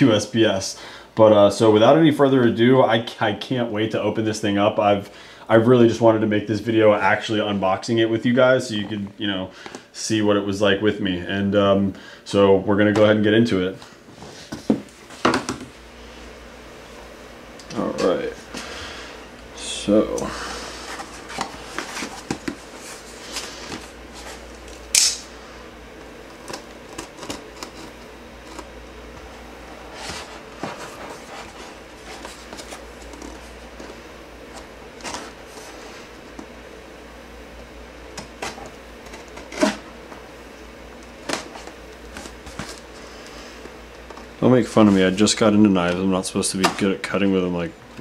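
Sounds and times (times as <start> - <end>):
sharp click: 24.9 - 25.3.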